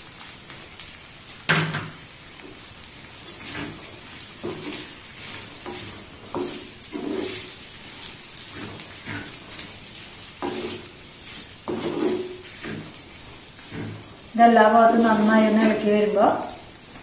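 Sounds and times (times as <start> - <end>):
light sizzle: 0.0 - 17.0
wooden spatula scraping a clay pot: 3.3 - 14.2.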